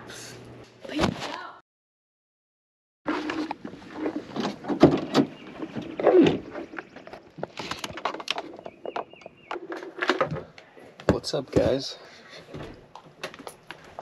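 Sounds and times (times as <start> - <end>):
objects knocking and clunking: 3.1 - 11.9.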